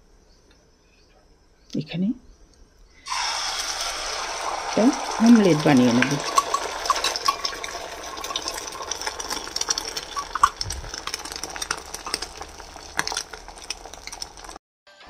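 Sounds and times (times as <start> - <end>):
egg sizzling in oil: 3.0 - 14.6.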